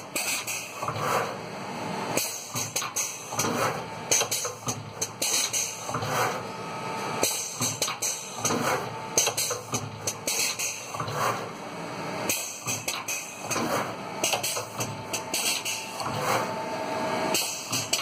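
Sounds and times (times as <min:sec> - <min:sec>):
pneumatic clamps clacking: 0:00.0 - 0:01.4, 0:02.2 - 0:06.4, 0:07.2 - 0:11.6, 0:12.3 - 0:16.6, 0:17.3 - 0:18.0.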